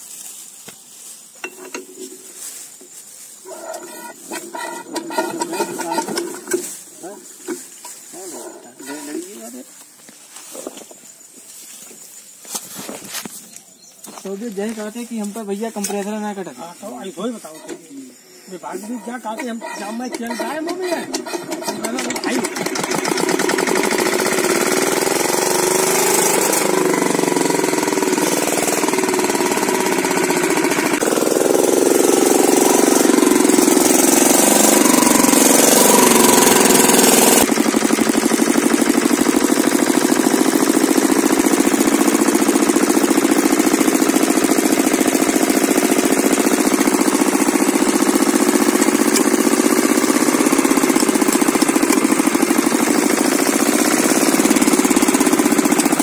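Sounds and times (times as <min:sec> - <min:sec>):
diesel engine running: 0:03.4 - 0:08.0, 0:18.6 - 0:56.0.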